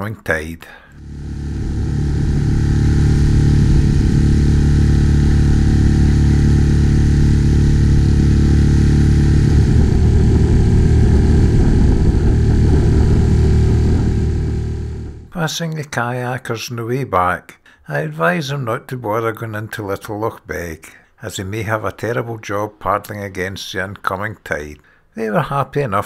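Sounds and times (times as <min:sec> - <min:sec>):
churning boat wake: 0:01.0 - 0:15.3
outboard motor running: 0:01.0 - 0:15.3.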